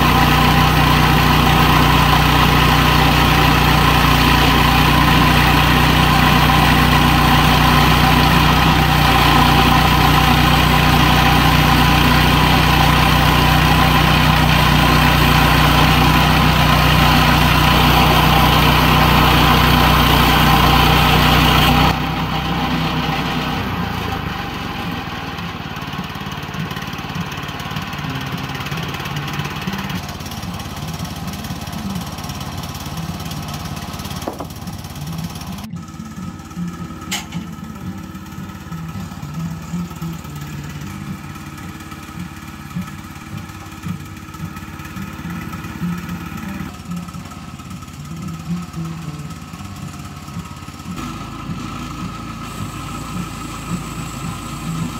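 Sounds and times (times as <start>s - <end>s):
band blade sawing log: 0.0s - 54.9s
bandsaw mill engine running: 0.0s - 54.9s.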